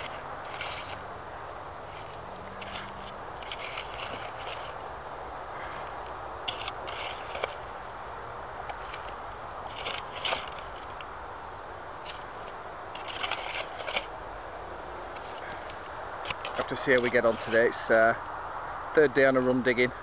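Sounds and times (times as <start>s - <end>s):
shovel scraping into ash and soil: 0.0s - 1.1s, 1.9s - 4.8s, 5.7s - 7.6s, 8.7s - 10.9s, 12.9s - 14.1s, 16.2s - 17.7s
steady background hiss: 0.0s - 20.0s.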